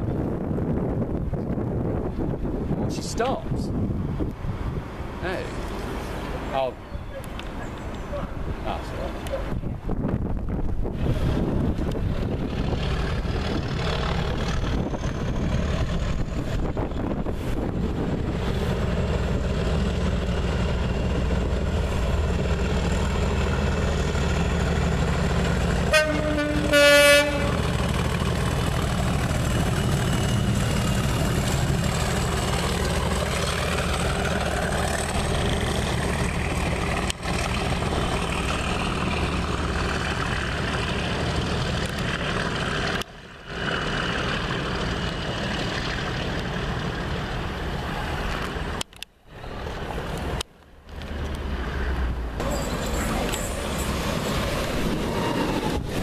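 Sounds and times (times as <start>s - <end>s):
diesel locomotive engine running: 3.6s - 56.0s
locomotive horn: 25.8s - 27.8s.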